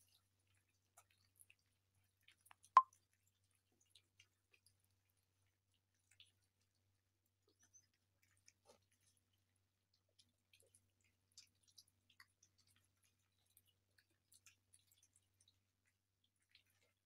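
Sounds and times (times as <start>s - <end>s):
kittens chewing and lapping food: 0.0s - 17.0s.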